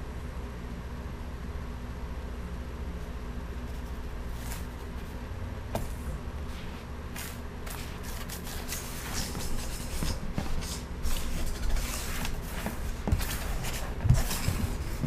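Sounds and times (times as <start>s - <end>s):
low steady hum: 0.0s - 15.0s
paper card scraping on wood: 5.8s - 15.0s.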